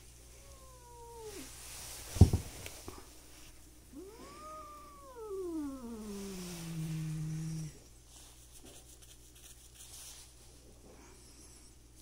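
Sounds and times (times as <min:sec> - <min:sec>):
cat yowling into a growl: 0:00.5 - 0:01.5, 0:03.9 - 0:07.8.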